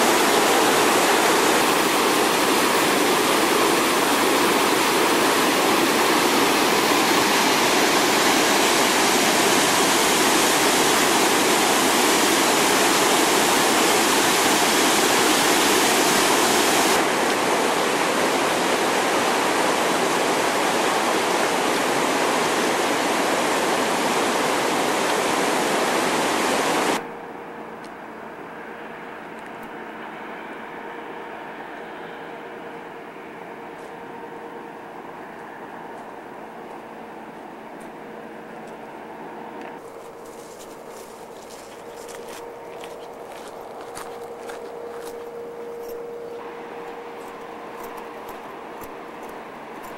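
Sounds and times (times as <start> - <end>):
water rushing over rocks: 0.0 - 27.0
faint steady hum: 0.0 - 49.9.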